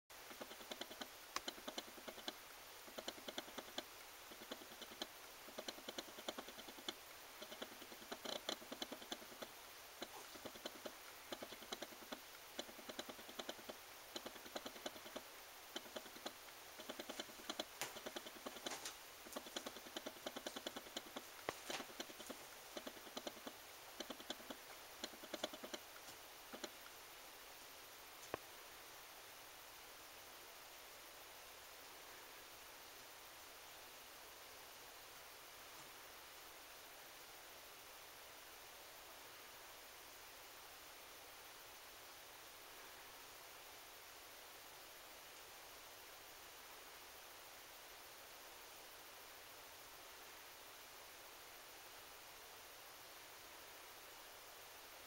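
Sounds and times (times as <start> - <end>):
steady hiss: 0.1 - 55.0
cats tussling clicking and rustling: 15.8 - 26.8.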